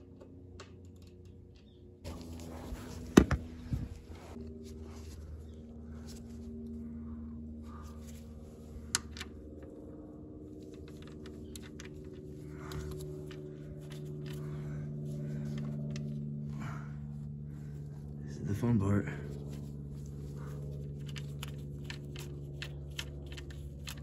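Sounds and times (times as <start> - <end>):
steady hum: 1.8 - 24.0.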